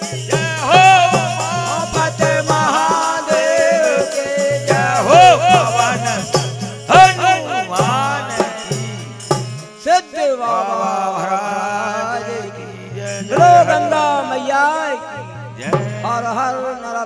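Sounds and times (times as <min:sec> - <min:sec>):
struck percussion: 0:00.0 - 0:10.1, 0:13.0 - 0:14.5, 0:15.2 - 0:16.4.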